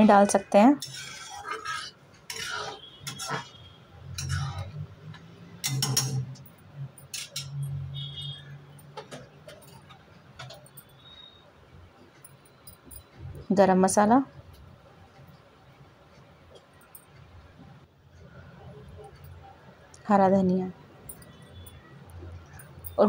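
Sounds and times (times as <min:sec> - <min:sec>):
metal spatula scraping a steel pan: 0:00.0 - 0:05.0, 0:05.6 - 0:06.4.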